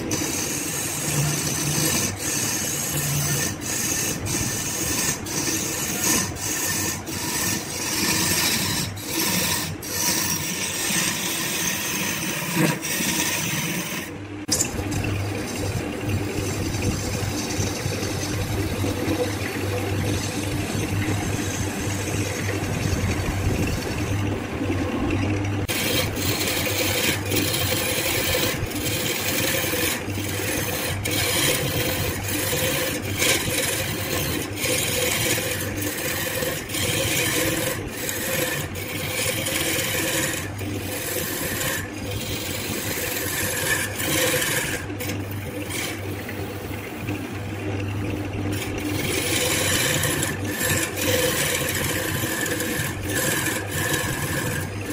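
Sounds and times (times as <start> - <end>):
lathe motor hum: 0.0 - 54.9
tool rasping on wood lathe: 0.0 - 54.9.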